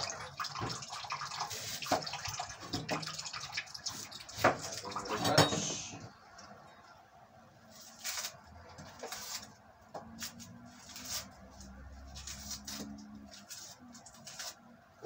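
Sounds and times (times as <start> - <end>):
hands rustling vegetables: 7.7 - 14.6.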